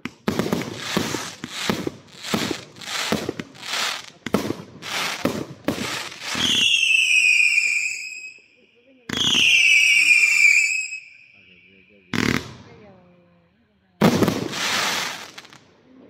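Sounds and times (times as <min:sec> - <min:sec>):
firework whistle: 0:00.0 - 0:04.1, 0:04.8 - 0:12.4
firework launch cracks: 0:00.0 - 0:06.8, 0:14.0 - 0:15.6.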